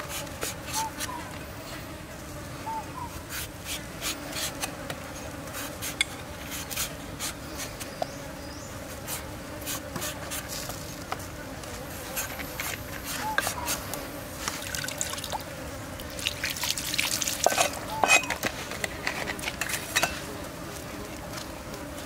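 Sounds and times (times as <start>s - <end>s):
cleaver scraping mango skin: 0.0s - 1.2s, 3.1s - 8.1s, 9.0s - 11.2s, 12.0s - 14.6s.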